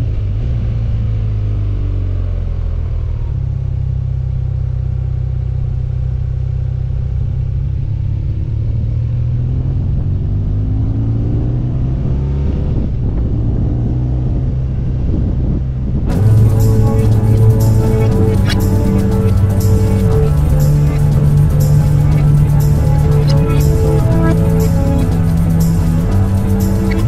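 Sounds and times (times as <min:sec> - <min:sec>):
road and wind rumble: 0:00.0 - 0:27.0
motorcycle engine running: 0:16.1 - 0:27.0.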